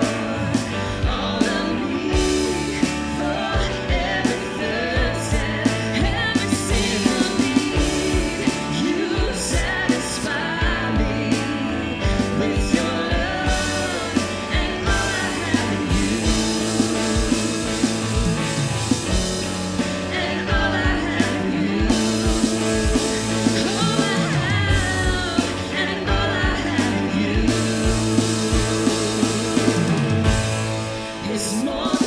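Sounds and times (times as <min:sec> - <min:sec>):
electric guitar: 0:00.0 - 0:32.0
keyboard: 0:00.0 - 0:32.0
worship band playing rock: 0:00.0 - 0:32.0
drum beat: 0:12.0 - 0:31.0.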